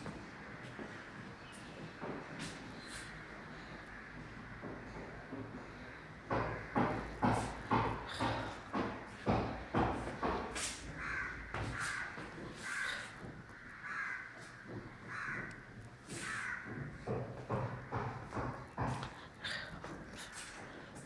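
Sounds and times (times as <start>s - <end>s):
crows cawing: 3.0s - 8.9s, 10.3s - 19.7s
knocks: 6.2s - 12.4s, 16.4s - 20.0s.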